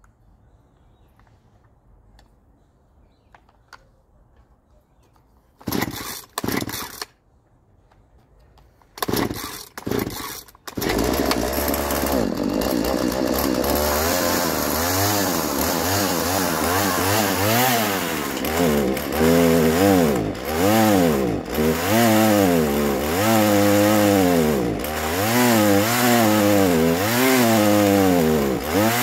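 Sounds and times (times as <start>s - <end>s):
chainsaw starting and revving: 5.6s - 7.1s, 9.0s - 29.0s.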